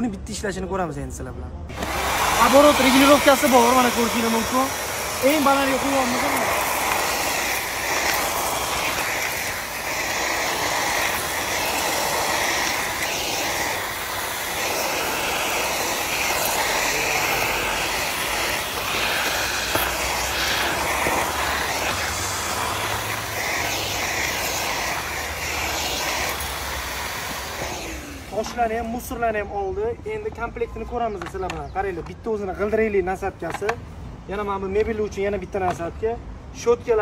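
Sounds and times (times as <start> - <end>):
nozzle sucking up debris on tiles: 1.7 - 28.8
vacuum cleaner running: 1.7 - 28.8.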